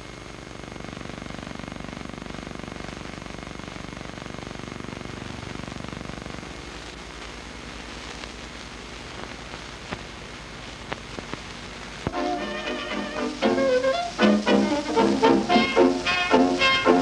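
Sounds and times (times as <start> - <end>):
film soundtrack hiss and crackles: 0.0 - 17.0
music: 12.1 - 17.0.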